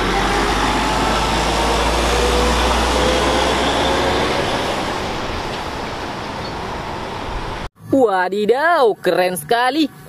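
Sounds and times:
truck engine drone: 0.0 - 7.7.

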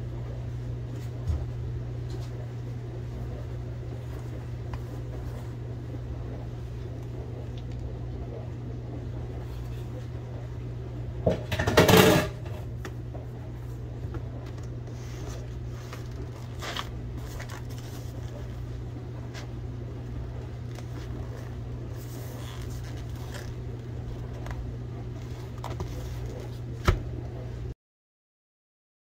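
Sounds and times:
steady low hum: 0.0 - 27.8
faint handling clicks and rustles: 13.2 - 26.7.

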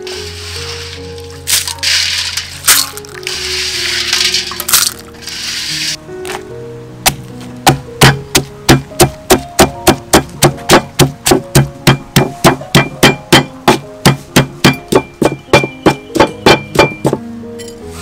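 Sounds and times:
background music: 0.0 - 18.0
stone pestle pounding in mortar: 7.1 - 17.2.

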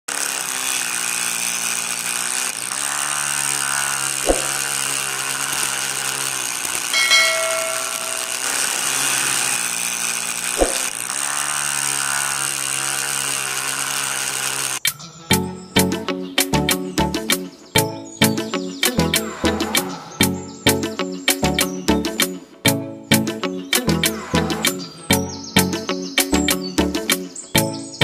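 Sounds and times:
small motor spinning saw blade: 0.1 - 14.9
short bell-like chime: 7.0 - 8.8.

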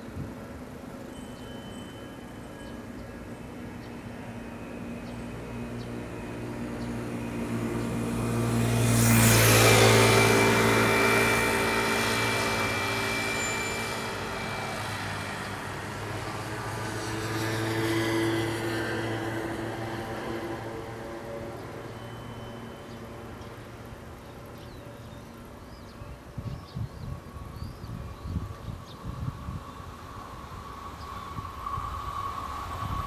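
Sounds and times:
electric train approaching: 0.0 - 33.0
vehicle passing by: 3.8 - 25.3.

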